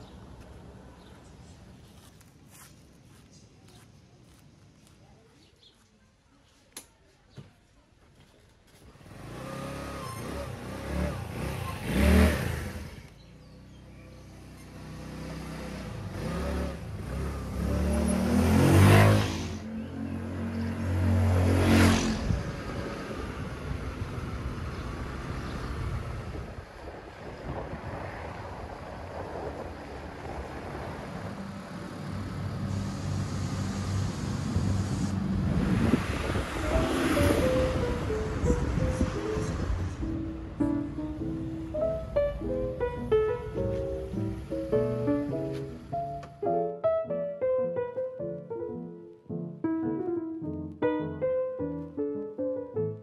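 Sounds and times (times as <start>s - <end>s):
scooter engine revving: 8.9s - 13.4s, 14.7s - 19.7s
motor scooter engine running: 9.0s - 13.4s
low engine hum: 9.0s - 46.1s
wind rushing over microphone: 21.6s - 43.7s.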